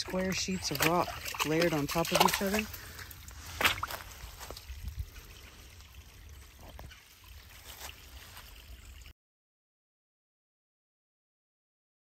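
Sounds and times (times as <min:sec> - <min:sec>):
water trickling over rock: 0:00.0 - 0:09.1.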